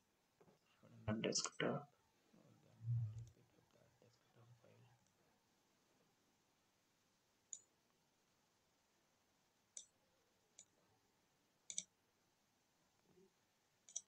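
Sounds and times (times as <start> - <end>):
computer mouse clicking: 7.5 - 7.7, 9.7 - 9.9, 11.7 - 11.9.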